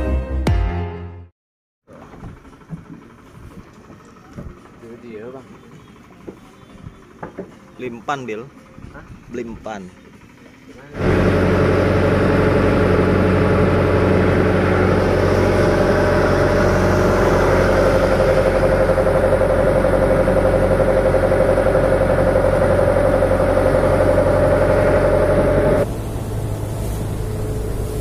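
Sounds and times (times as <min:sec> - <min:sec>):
boat engine running: 0:01.9 - 0:28.0.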